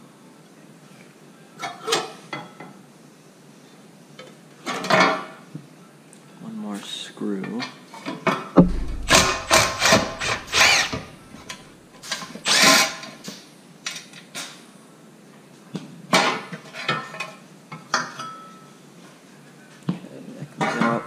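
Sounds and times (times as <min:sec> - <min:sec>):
power driver motor whining: 0:08.7 - 0:11.5.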